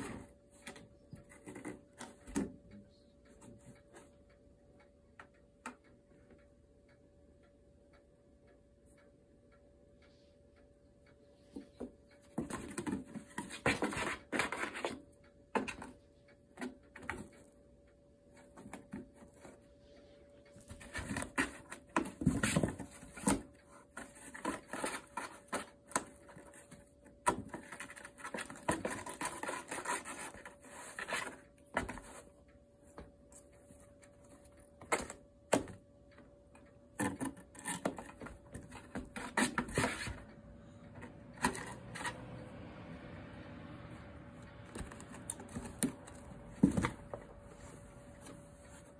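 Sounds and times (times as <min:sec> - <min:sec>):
claws scratching cardboard: 0:20.7 - 0:32.2, 0:37.0 - 0:40.2, 0:44.7 - 0:47.6.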